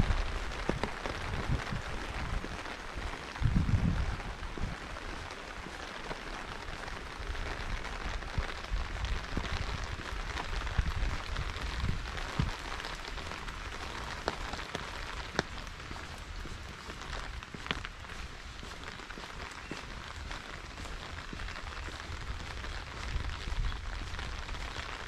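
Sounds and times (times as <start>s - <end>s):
rain hissing: 0.0s - 25.0s.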